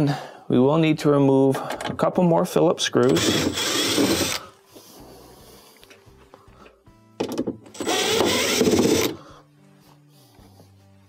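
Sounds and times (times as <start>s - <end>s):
impact driver backing out screws: 3.0s - 4.4s, 7.8s - 9.2s.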